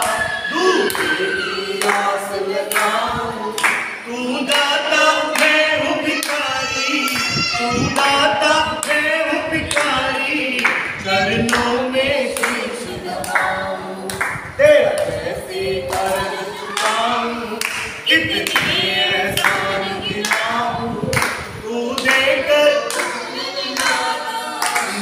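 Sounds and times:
group singing unaccompanied: 0.0 - 25.0
rhythmic hand-clapping: 0.0 - 25.0.

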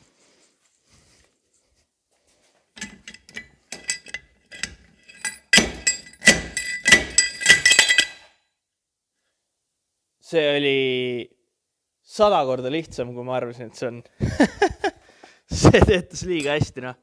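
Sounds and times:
slide hammer metal blows: 2.8 - 8.3.

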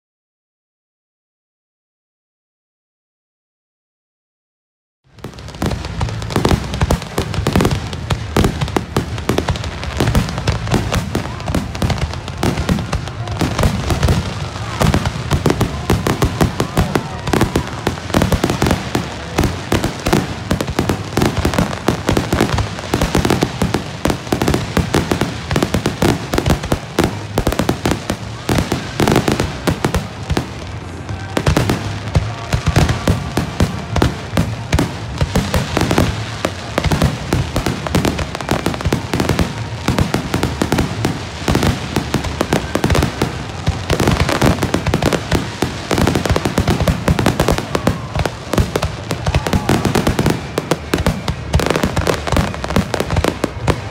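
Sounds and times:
fireworks bangs and crackles: 5.1 - 53.9.

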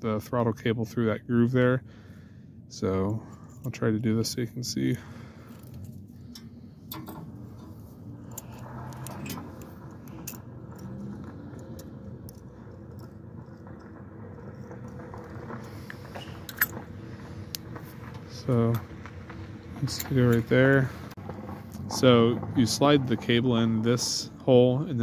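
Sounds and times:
steady low hum: 0.0 - 25.0
small metal parts clicking: 5.5 - 16.8.

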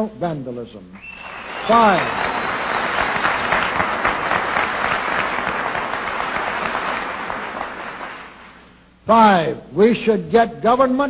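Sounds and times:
audience applauding: 1.0 - 8.6.

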